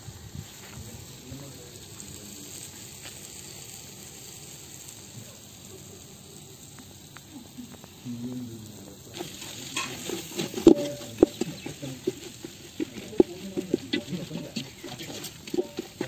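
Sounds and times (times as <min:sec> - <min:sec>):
food sizzling in a metal pot: 0:00.0 - 0:16.0
wooden spatula scraping pot: 0:09.2 - 0:16.0.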